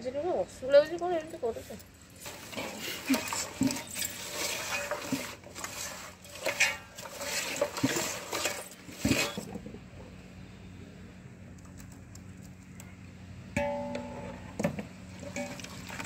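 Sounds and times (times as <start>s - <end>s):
hand mixing chicken in metal pot: 2.2s - 9.4s, 15.2s - 16.0s.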